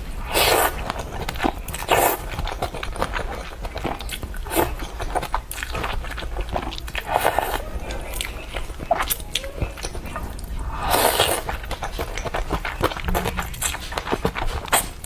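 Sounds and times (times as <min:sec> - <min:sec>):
wet chewing and smacking: 0:00.0 - 0:15.0
person slurping noodles: 0:00.2 - 0:02.4, 0:06.5 - 0:07.6, 0:10.6 - 0:13.0.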